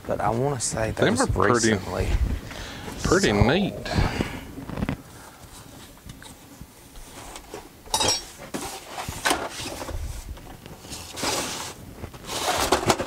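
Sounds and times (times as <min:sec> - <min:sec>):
tools clinking and knocking: 0:07.9 - 0:08.4.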